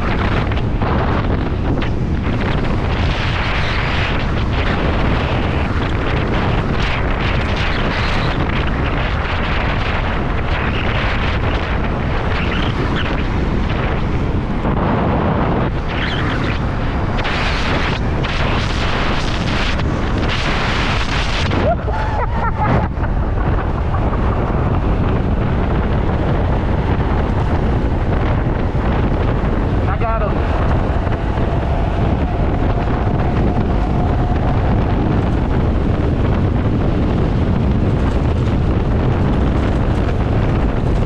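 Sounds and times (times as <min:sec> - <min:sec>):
wind buffeting microphone: 0:00.0 - 0:41.0.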